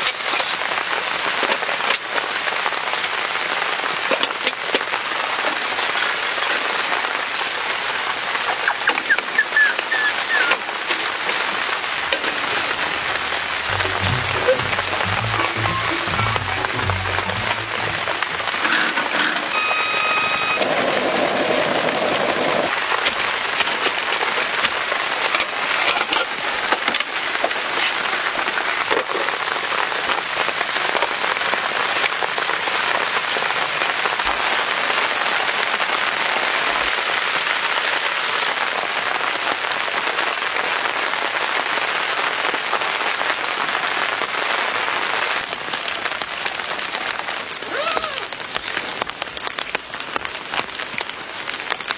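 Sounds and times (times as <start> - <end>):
rain on tent fabric: 0.0 - 51.9
high ringing tone: 19.5 - 20.6.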